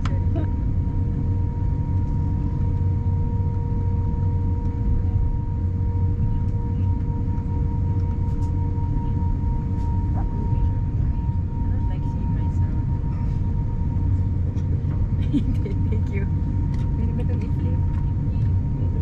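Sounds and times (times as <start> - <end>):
low cabin rumble: 0.0 - 19.0.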